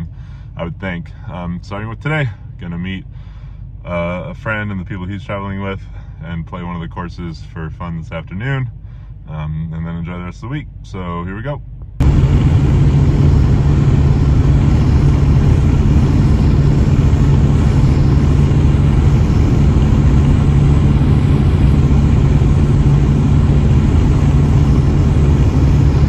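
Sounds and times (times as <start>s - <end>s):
car road and wind noise: 11.6s - 26.0s.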